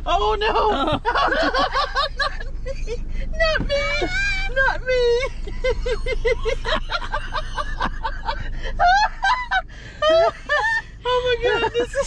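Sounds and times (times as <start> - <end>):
woman laughing hard: 0.7 - 3.0, 5.2 - 12.0.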